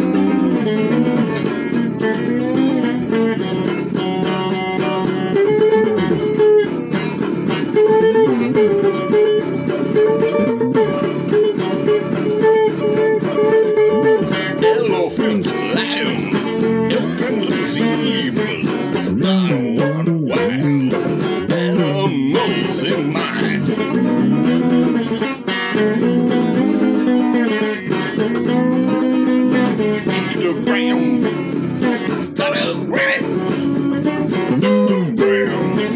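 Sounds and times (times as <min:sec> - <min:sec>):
electric guitar playing blues: 0:00.0 - 0:35.9
person singing: 0:07.8 - 0:24.8, 0:28.4 - 0:33.6, 0:34.3 - 0:35.9.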